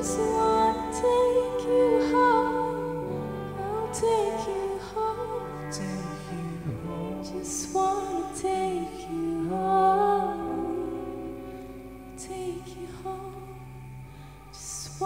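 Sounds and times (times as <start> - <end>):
piano: 0.0 - 15.0
violin and cellos: 0.0 - 15.0.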